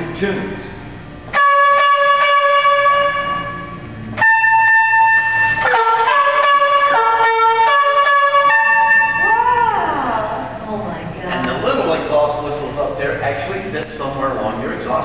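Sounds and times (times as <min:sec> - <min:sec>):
musical car horn playing a tune: 0:01.3 - 0:09.5.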